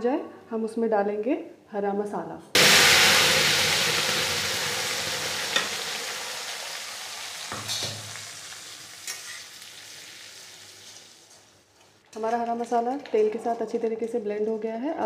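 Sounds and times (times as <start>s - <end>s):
paste sizzling in hot oil: 2.6s - 11.5s.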